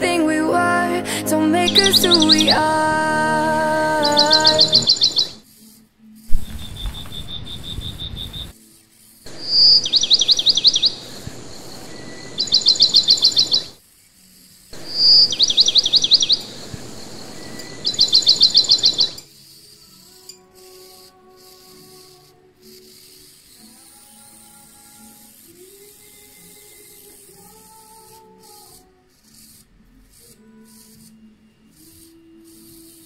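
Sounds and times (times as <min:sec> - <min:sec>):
faint background hiss: 0:00.0 - 0:33.0
bird chirping in trills: 0:01.2 - 0:05.4, 0:06.3 - 0:08.6, 0:09.3 - 0:13.8, 0:14.8 - 0:19.2.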